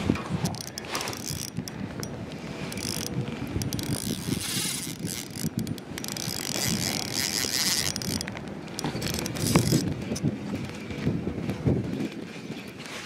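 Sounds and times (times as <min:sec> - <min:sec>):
fishing reel ratcheting whir: 0:00.4 - 0:10.2.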